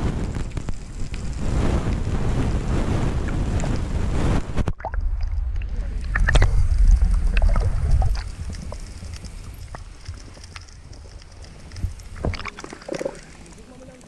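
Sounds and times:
underwater rumble of moving water: 0.0s - 14.0s
sharp clicks and ticks: 4.6s - 14.0s.

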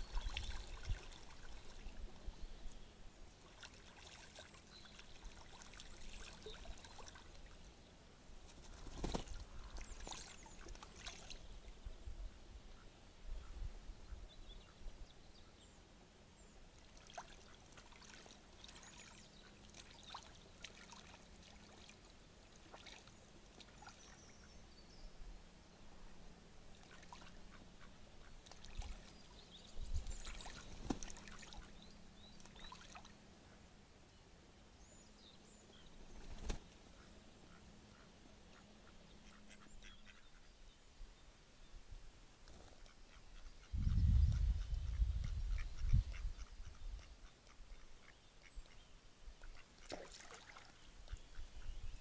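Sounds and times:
ducks splashing in water: 0.2s - 2.0s, 3.4s - 7.7s, 8.5s - 11.4s, 16.8s - 24.2s, 26.7s - 29.4s, 30.2s - 31.8s, 32.4s - 33.2s, 49.4s - 51.2s.

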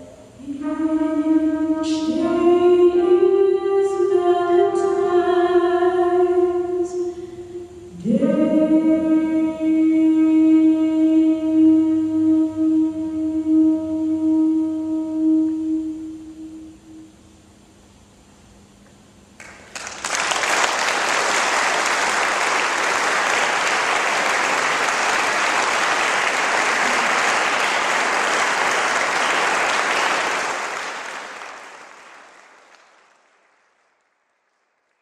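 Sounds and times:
audience applauding: 19.4s - 35.0s.

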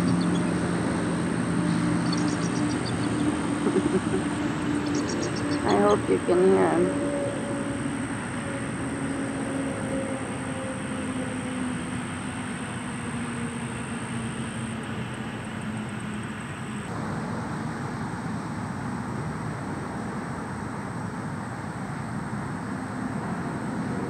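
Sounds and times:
distant motor engine rumble: 0.0s - 21.1s.

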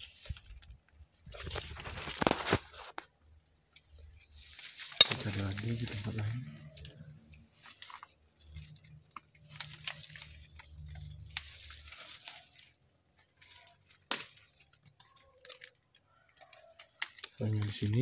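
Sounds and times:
leaves and twigs rustling: 0.0s - 18.0s
twig snapping: 7.6s - 12.7s, 13.4s - 17.8s.

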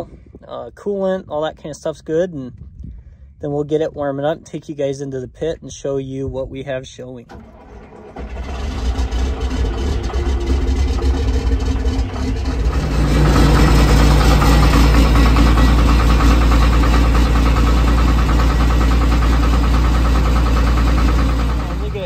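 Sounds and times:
diesel engine running: 7.3s - 22.0s.

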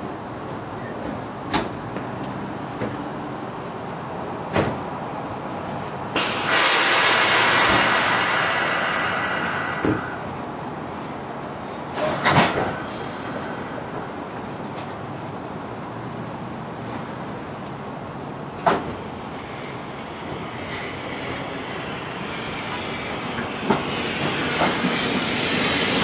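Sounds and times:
air brakes hissing: 6.2s - 10.4s, 11.9s - 14.2s, 18.1s - 26.0s.

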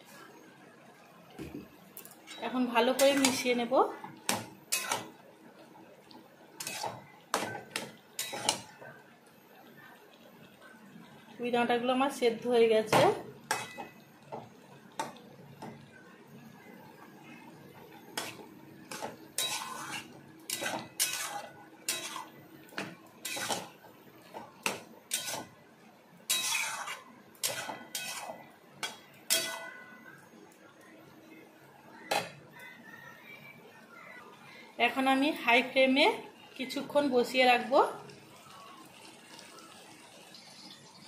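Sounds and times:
metal spatula scraping wok: 2.3s - 3.7s, 4.6s - 5.2s, 6.6s - 8.8s, 18.1s - 25.6s, 26.2s - 30.0s.

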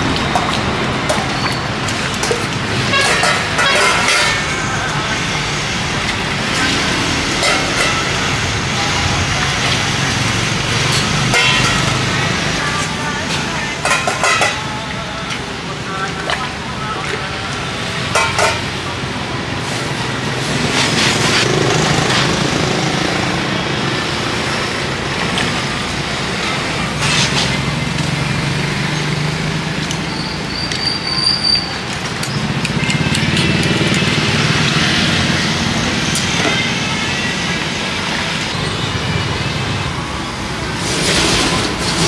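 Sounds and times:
steel bowls clinking: 0.0s - 4.7s, 6.6s - 8.5s, 10.8s - 12.8s, 13.7s - 15.4s, 18.0s - 18.8s
street traffic: 0.0s - 42.0s.

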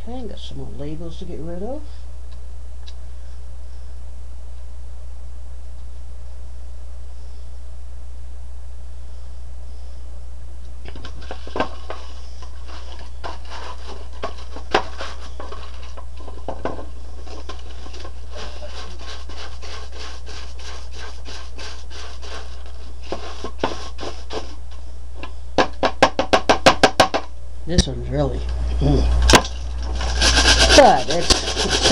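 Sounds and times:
steady low hum: 0.0s - 31.9s
brush scrubbing plastic: 11.0s - 16.5s, 17.1s - 24.8s, 29.7s - 31.9s.

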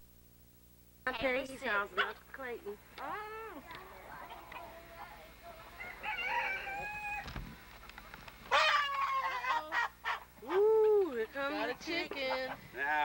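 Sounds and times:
chicken squawking: 5.6s - 7.3s, 8.5s - 10.6s.

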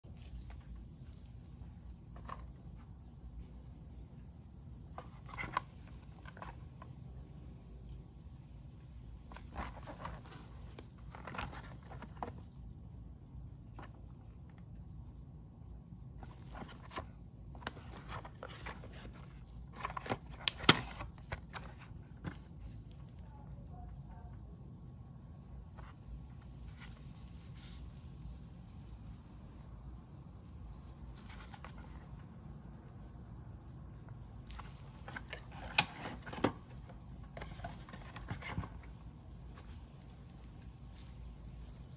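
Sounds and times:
cardboard carton rustling: 0.1s - 3.2s, 9.2s - 12.7s, 16.1s - 23.2s, 29.6s - 32.8s, 34.0s - 41.9s.

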